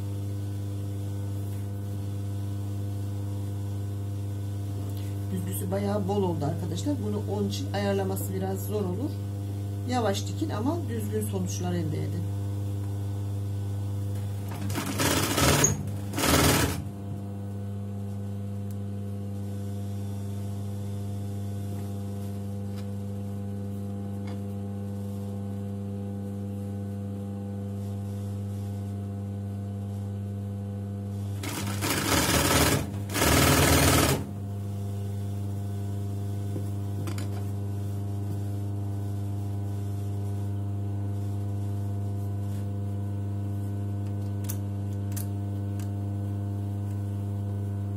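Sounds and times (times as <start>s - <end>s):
sewing machine stitching: 14.5s - 16.9s, 31.4s - 34.3s.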